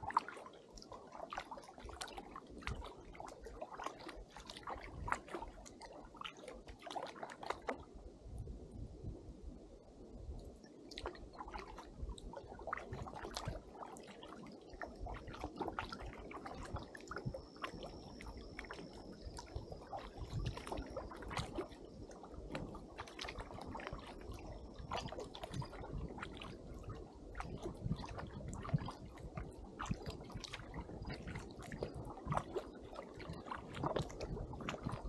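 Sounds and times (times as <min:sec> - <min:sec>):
paddle splashing in water: 0:00.0 - 0:07.9, 0:10.9 - 0:35.0.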